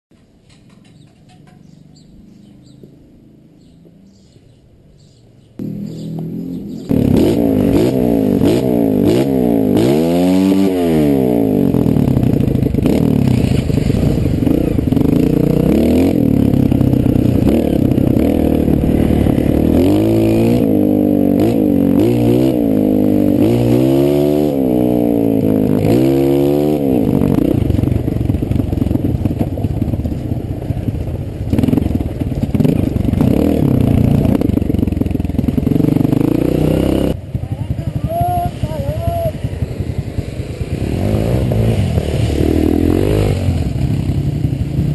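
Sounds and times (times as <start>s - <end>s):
dirt bike engine revving: 5.6s - 44.9s.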